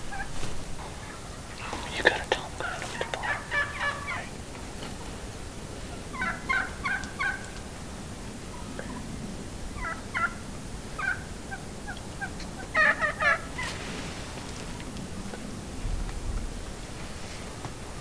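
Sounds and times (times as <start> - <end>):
wild turkeys gobbling: 0.1 - 7.8, 9.8 - 13.8
short turkey calls: 2.5 - 4.3.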